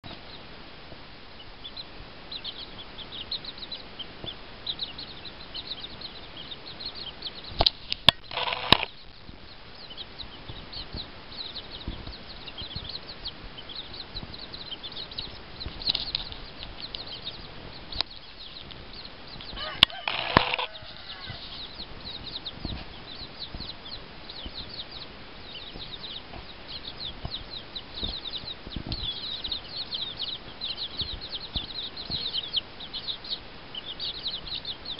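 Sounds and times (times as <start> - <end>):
chicks peeping: 0.0 - 34.9
hen clucking: 1.4 - 34.9
sharp clicks: 7.6 - 9.0, 19.4 - 20.7.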